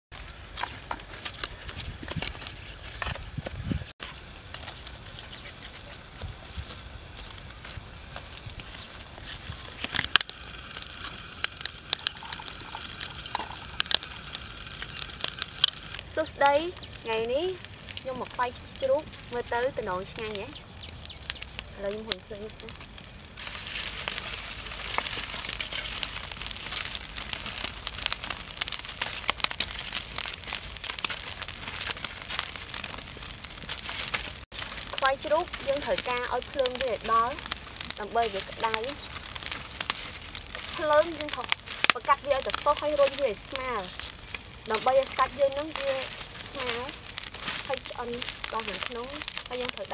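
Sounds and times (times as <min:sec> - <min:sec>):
fire crackling and popping: 0:00.1 - 0:49.9
steady hiss: 0:10.0 - 0:20.2.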